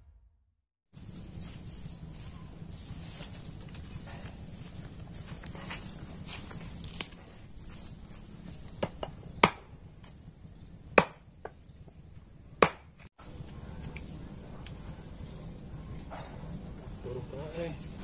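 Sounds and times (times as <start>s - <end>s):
blade chopping into wood: 8.8s - 9.8s, 11.0s - 11.3s, 12.6s - 13.1s.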